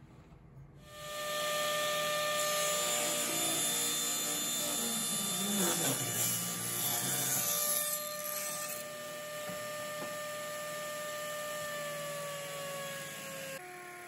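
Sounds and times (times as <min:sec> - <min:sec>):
table saw idling whine: 0:00.9 - 0:06.8.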